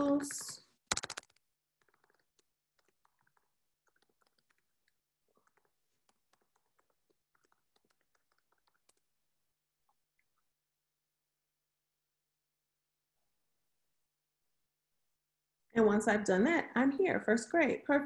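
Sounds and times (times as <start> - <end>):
faint keyboard typing: 0.4 - 9.0.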